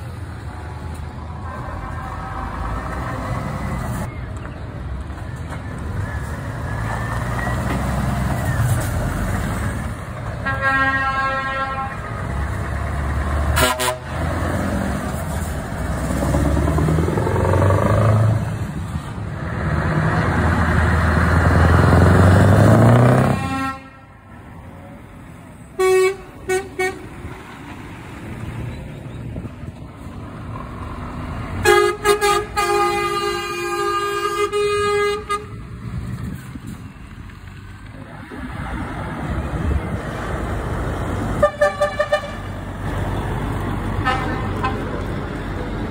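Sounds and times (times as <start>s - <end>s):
truck diesel engines accelerating: 0.0s - 45.9s
truck horn blasts: 10.4s - 12.3s, 13.5s - 14.3s, 23.0s - 24.2s, 25.8s - 27.1s, 31.6s - 35.6s, 41.4s - 42.5s, 44.0s - 44.9s.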